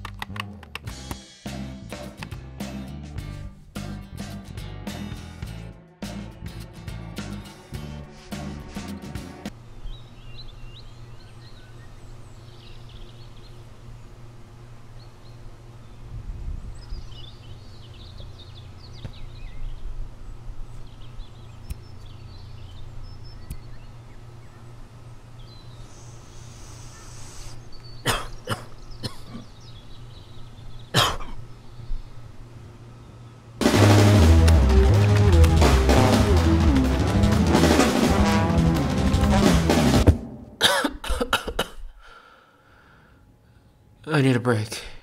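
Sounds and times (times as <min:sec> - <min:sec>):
steady low hum: 0:06.5 - 0:45.0
faint bird chirps: 0:25.4 - 0:32.2
man coughing: 0:28.0 - 0:29.5, 0:30.9 - 0:31.4, 0:40.6 - 0:42.0.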